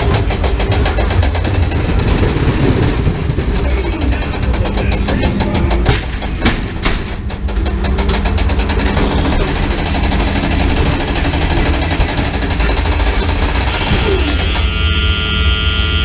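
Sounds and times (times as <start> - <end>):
sharp knocks: 0.0 - 14.6
ride car rattling on track: 0.0 - 15.0.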